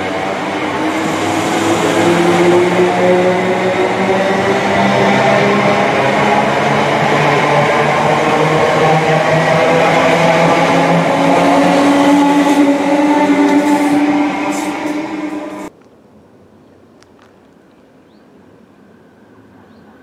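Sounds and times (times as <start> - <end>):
electric train whine: 0.0 - 15.7
train wheels on rails: 0.0 - 15.7.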